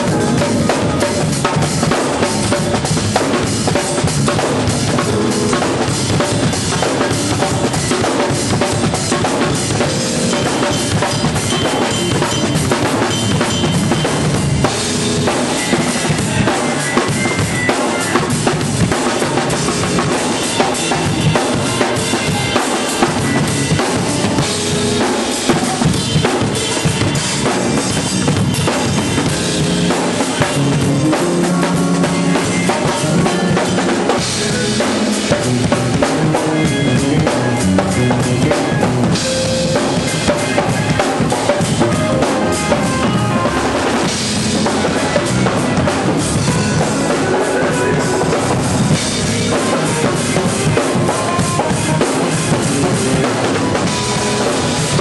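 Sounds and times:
bass guitar: 0:00.0 - 0:55.0
drum kit playing: 0:00.0 - 0:55.0
organ chords: 0:00.0 - 0:55.0.

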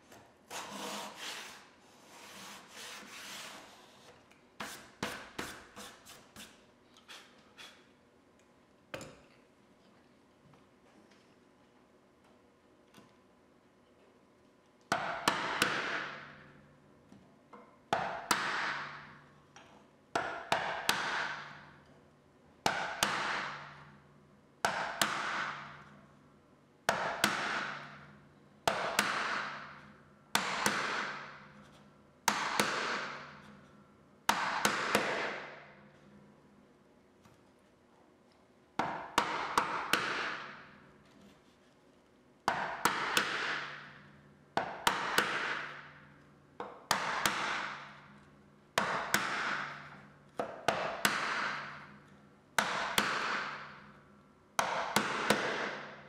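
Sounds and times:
mallet striking wood chisel: 0:14.9 - 0:16.3, 0:17.9 - 0:19.0, 0:20.2 - 0:21.7, 0:22.6 - 0:23.7, 0:24.6 - 0:25.8, 0:26.9 - 0:27.9, 0:28.7 - 0:31.4, 0:32.3 - 0:33.4, 0:34.3 - 0:35.6, 0:38.8 - 0:40.6, 0:42.5 - 0:44.0, 0:44.6 - 0:45.9, 0:46.6 - 0:48.1, 0:48.8 - 0:52.0, 0:52.6 - 0:53.9, 0:54.6 - 0:56.0.

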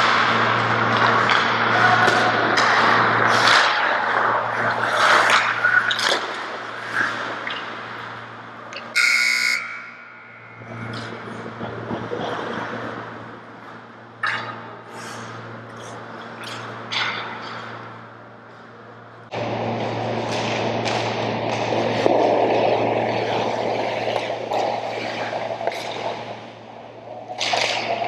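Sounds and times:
hockey sticks clattering: 0:00.0 - 0:08.1, 0:13.7 - 0:18.6, 0:27.1 - 0:28.0
arena hum: 0:00.0 - 0:28.0
referee's whistle blast: 0:09.0 - 0:09.8.

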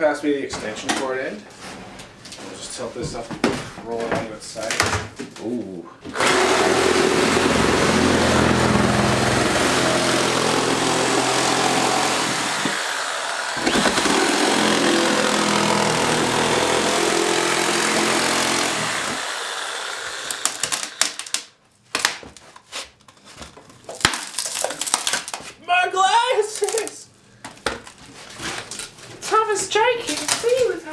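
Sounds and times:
power saw cutting plywood: 0:06.1 - 0:21.4.

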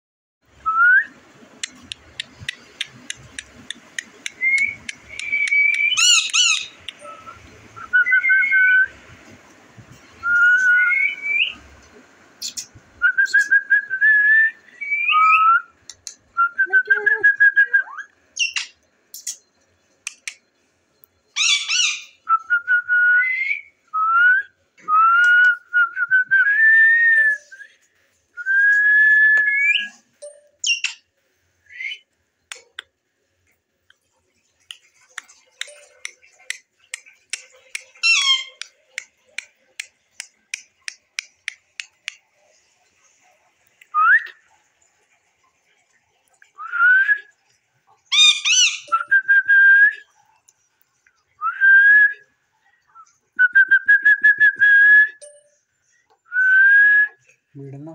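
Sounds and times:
parrot whistling: 0:04.2 - 0:08.9, 0:10.2 - 0:11.6, 0:12.4 - 0:15.8, 0:21.4 - 0:23.7, 0:31.7 - 0:32.1, 0:38.0 - 0:38.6, 0:48.1 - 0:50.0.

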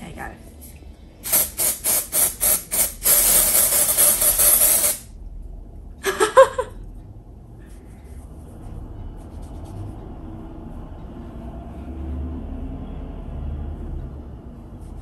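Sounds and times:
aerosol can spraying: 0:01.2 - 0:05.0.

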